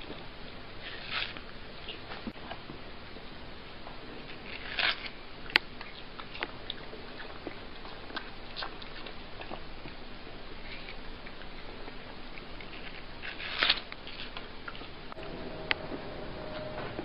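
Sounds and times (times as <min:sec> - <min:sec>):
cat chewing watermelon: 0:00.0 - 0:15.2.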